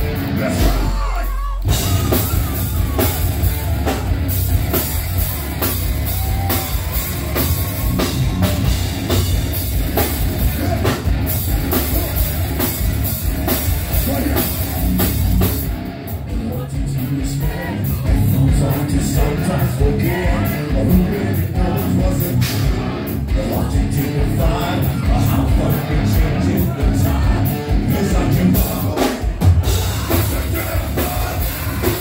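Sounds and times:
heavy metal band playing: 0:00.0 - 0:32.0.

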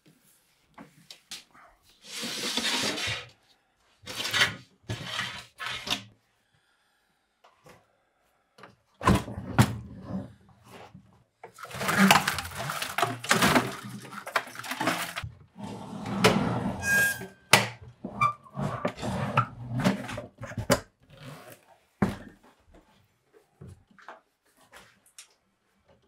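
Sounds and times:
wiring rustling and scraping: 0:11.6 - 0:15.3.

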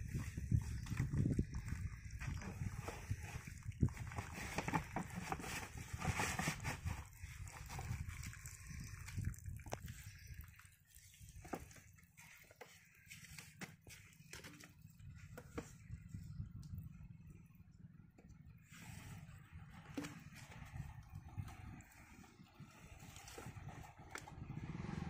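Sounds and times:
hose knocking and rustling: 0:00.0 - 0:08.2, 0:11.3 - 0:16.1, 0:19.7 - 0:24.3.

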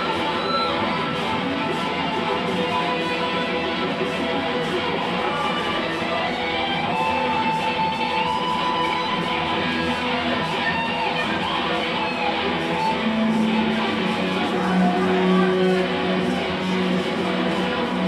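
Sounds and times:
live rock band playing: 0:00.0 - 0:18.0
strummed electric guitar: 0:00.0 - 0:18.0.

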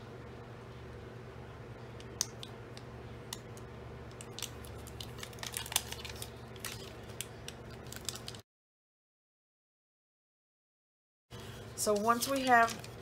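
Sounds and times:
steady low hum: 0:00.0 - 0:08.4
paper rustling and crinkling: 0:04.3 - 0:08.4, 0:11.8 - 0:13.0.

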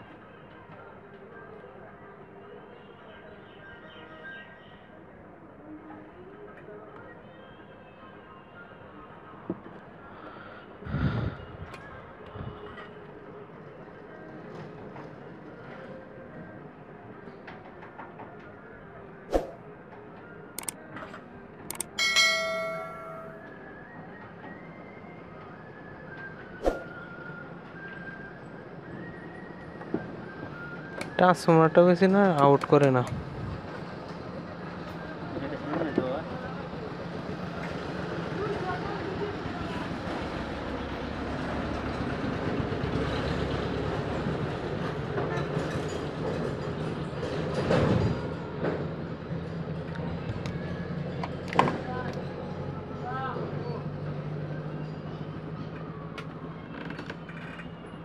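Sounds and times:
bell ding: 0:21.7 - 0:23.5.

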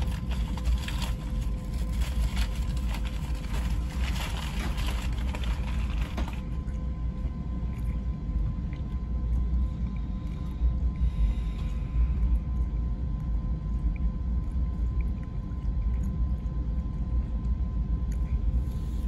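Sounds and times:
train rumble from inside: 0:00.0 - 0:06.6
faint steady hum: 0:00.0 - 0:19.0.

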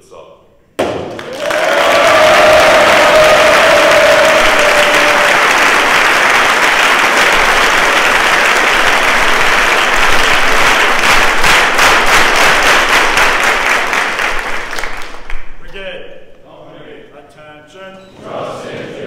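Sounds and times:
large crowd applauding: 0:00.8 - 0:15.5
person cheering: 0:01.2 - 0:05.7.

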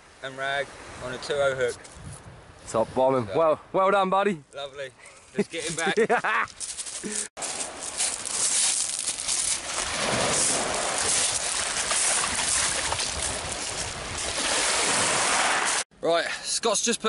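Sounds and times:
waves washing over shingle: 0:07.4 - 0:15.8.

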